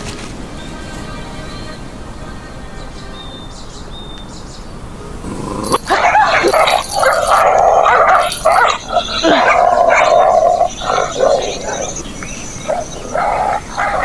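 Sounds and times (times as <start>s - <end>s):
dogs snarling: 5.2s - 12.0s, 12.6s - 14.0s.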